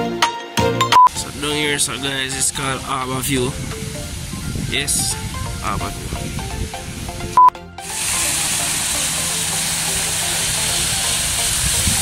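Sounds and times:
steady hiss: 1.1s - 12.0s
short tone blip: 7.4s - 7.6s.

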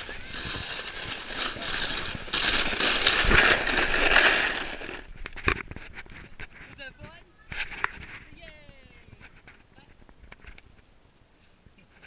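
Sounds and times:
sled sliding over snow: 0.0s - 9.9s.

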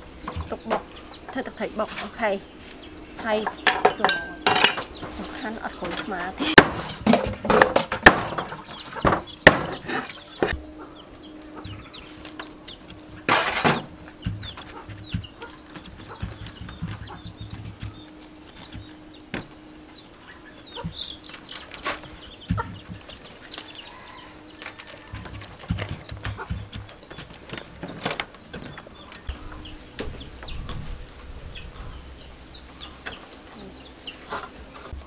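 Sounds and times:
knocks and clicks: 11.6s - 18.0s.

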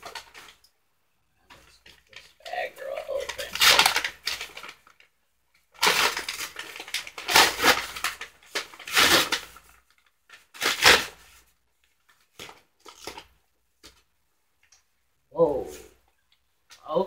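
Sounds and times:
paper bag crinkling: 1.5s - 5.1s, 5.7s - 11.5s.

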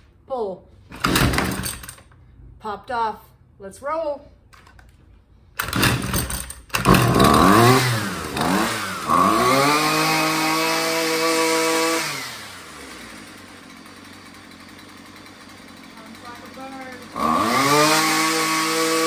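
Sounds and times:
string trimmer engine revving: 5.6s - 19.0s.

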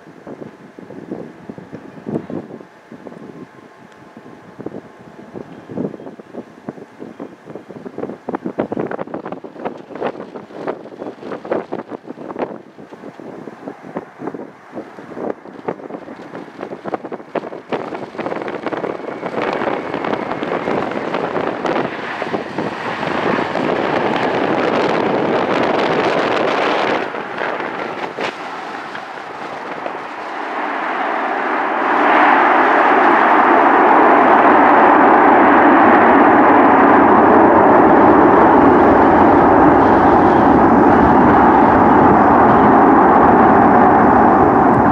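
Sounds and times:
jet engines roaring: 0.0s - 44.9s
wind buffeting microphone: 0.0s - 44.9s.

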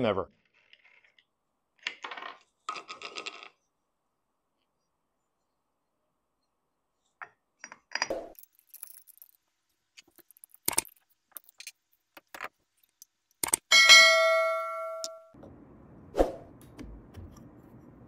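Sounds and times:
small metal clicks and clinks: 7.6s - 9.4s.

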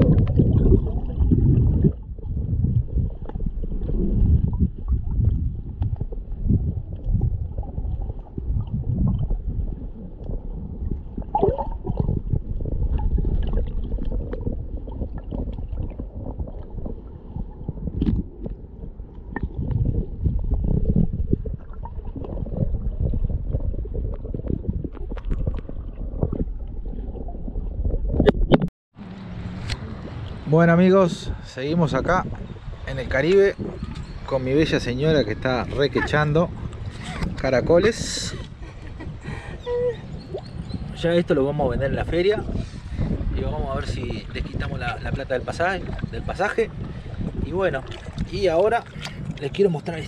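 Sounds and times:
underwater churning water rumble: 0.0s - 50.0s
small underwater clicks: 24.8s - 27.3s, 47.9s - 49.6s.

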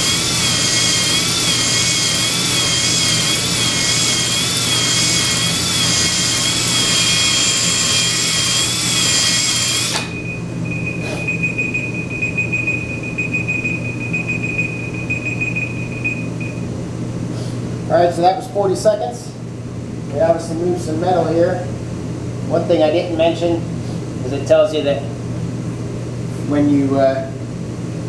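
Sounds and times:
electric drill whining: 0.0s - 10.2s
timer alarm beeping rapidly: 10.1s - 16.6s.

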